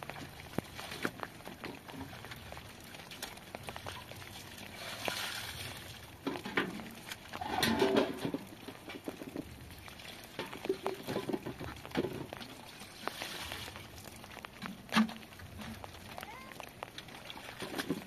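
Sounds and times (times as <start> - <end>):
water splashing onto ground: 0.0 - 18.0
wet clothes sloshing and squelching: 0.0 - 18.0.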